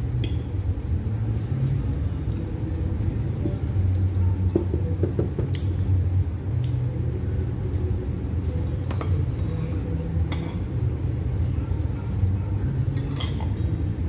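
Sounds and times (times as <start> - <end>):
steady low hum: 0.0 - 14.0
fork clinking on a plate: 12.9 - 13.8.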